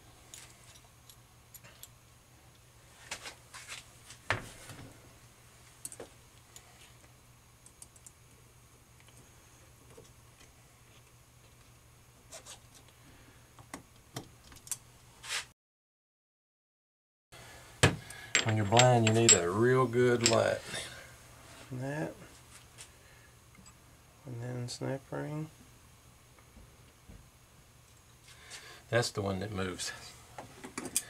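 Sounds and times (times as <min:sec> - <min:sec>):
metal parts clinking: 0:18.3 - 0:20.6.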